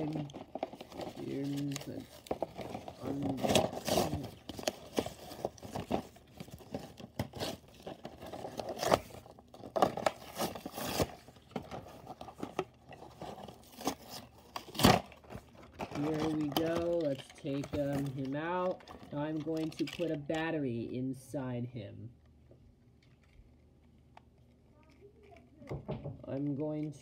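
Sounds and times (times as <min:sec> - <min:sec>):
cardboard packaging crinkling and tearing: 0:00.0 - 0:20.4.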